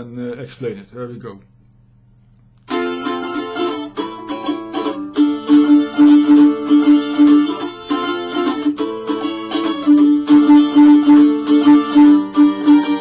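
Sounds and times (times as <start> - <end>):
mandolin strumming chords: 2.7 - 13.0.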